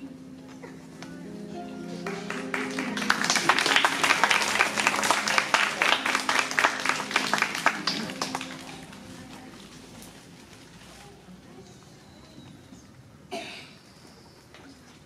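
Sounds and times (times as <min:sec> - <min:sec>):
audience applauding: 0:01.9 - 0:09.7.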